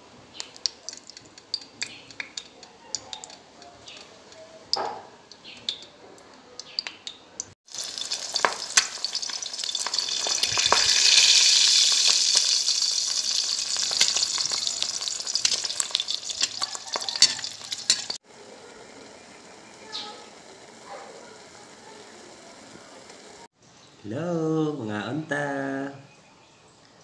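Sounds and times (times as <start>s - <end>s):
egg sizzling in hot oil: 0.4s - 4.4s, 6.8s - 23.6s.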